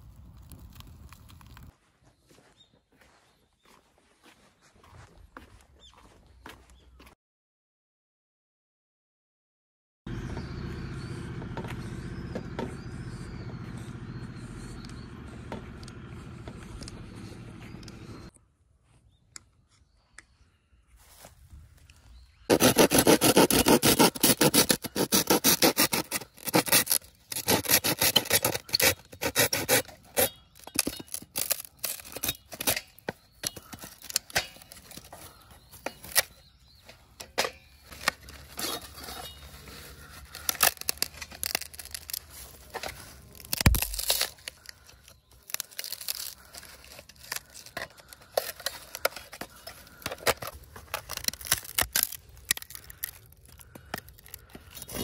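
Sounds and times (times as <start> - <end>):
hand saw cutting bamboo: 22.5 - 36.4, 37.1 - 55.0.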